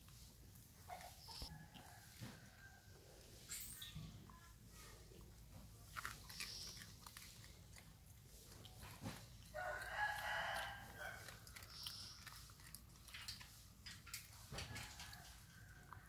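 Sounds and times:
rooster crowing: 9.5s - 11.4s, 14.6s - 16.0s.

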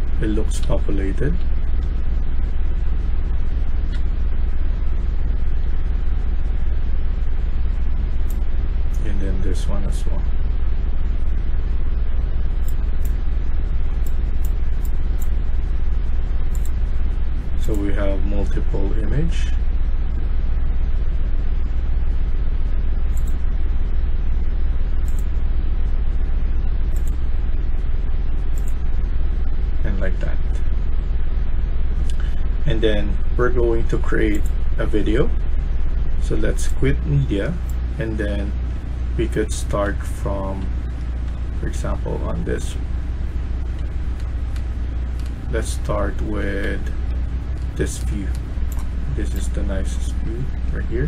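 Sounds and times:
low background hum: 0.0s - 51.0s
low rumble: 0.0s - 51.0s
computer mouse clicks: 16.5s - 16.8s, 23.1s - 23.4s, 25.0s - 25.3s, 26.9s - 27.2s, 28.5s - 28.8s, 43.8s - 45.4s, 47.1s - 48.9s.

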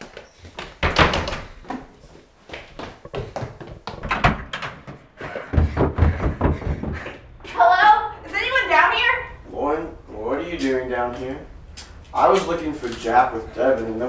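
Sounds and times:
footsteps on carpeted stairs: 0.0s - 7.7s
door thunk: 4.0s - 7.0s.

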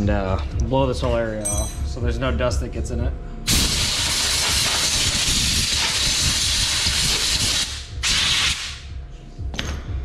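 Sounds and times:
compressed air blow gun hissing: 3.5s - 8.8s.

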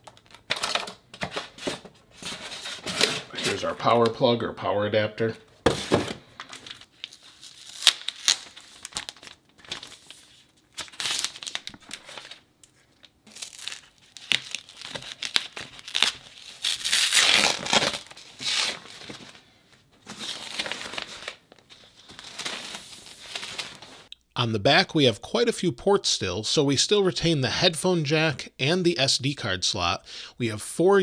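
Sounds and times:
plastic packaging crinkling: 6.4s - 19.4s.

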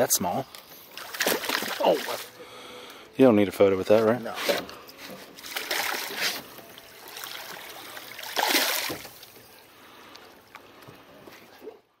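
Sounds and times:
fish splashing in water: 0.9s - 2.3s, 5.4s - 9.4s.

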